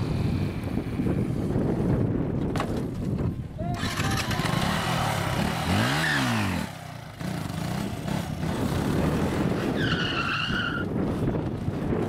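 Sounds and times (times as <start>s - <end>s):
motorcycle engine revving: 3.7s - 9.8s.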